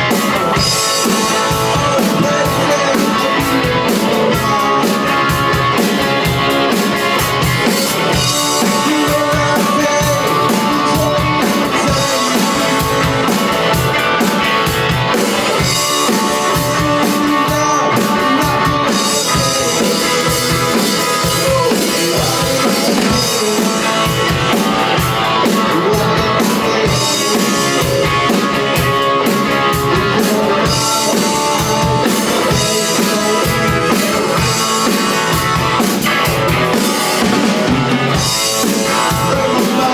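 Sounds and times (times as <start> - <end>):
drum kit rock beat: 0.0 - 39.9
electric guitar: 0.0 - 39.9.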